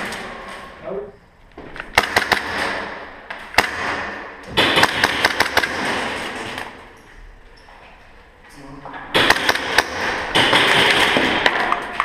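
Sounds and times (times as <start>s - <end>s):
airsoft guns firing: 1.8s - 6.8s, 9.1s - 12.0s.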